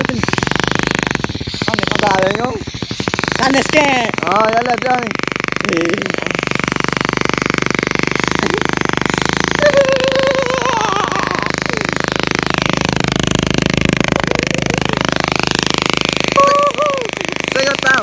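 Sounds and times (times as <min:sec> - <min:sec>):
motorcycle engine chugging: 0:00.0 - 0:18.0.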